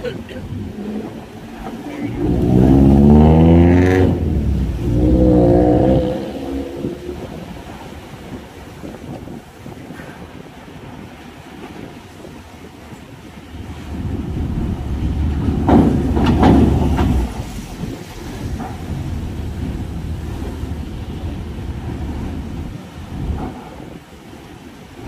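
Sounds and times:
vehicles rumbling over ramp: 0.0s - 8.4s, 13.6s - 24.0s.

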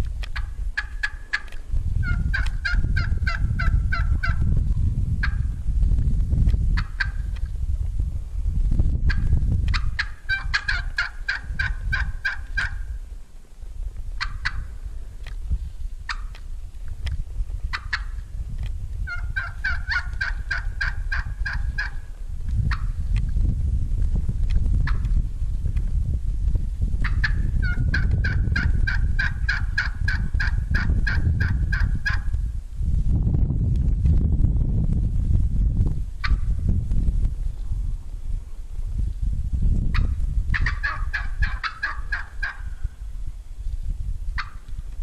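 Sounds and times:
turkey clucks: 0.2s - 4.4s, 6.8s - 7.4s, 9.1s - 12.9s, 14.2s - 14.7s, 16.1s - 16.4s, 17.7s - 18.2s, 19.0s - 22.1s, 22.7s - 23.0s, 24.8s - 25.1s, 27.0s - 32.4s, 36.2s - 36.5s, 39.9s - 42.8s, 44.4s - 44.7s
turkey yelping: 0.4s - 4.4s, 6.8s - 7.2s, 9.1s - 12.8s, 14.2s - 14.7s, 16.1s - 16.4s, 17.7s - 18.1s, 19.1s - 22.0s, 27.0s - 32.3s, 39.9s - 42.7s, 44.4s - 44.6s.

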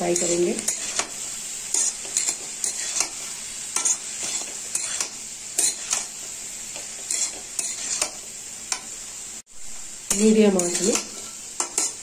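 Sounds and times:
cauliflower sizzling in oil: 0.0s - 12.0s
metal spatula scraping pan: 0.1s - 6.2s, 6.8s - 8.2s, 10.1s - 12.0s.

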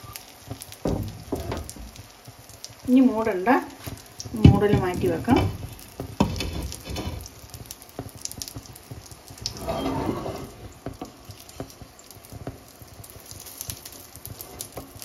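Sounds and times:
egg sizzling: 0.0s - 15.0s
spatula scraping frying pan: 4.5s - 7.6s, 9.4s - 11.1s.

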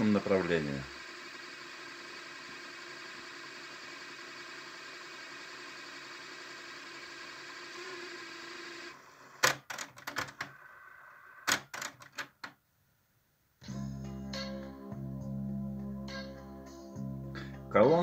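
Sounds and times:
cassette tape whirring: 0.0s - 12.5s.

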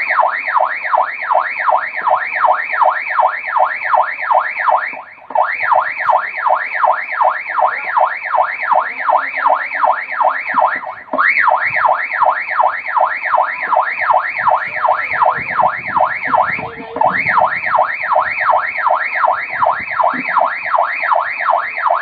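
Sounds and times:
warbling electronic tone: 13.3s - 20.4s.

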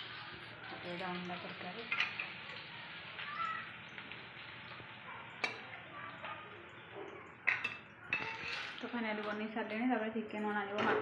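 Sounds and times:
metal clinking on pan: 1.8s - 2.6s, 5.3s - 5.8s, 7.4s - 9.4s.

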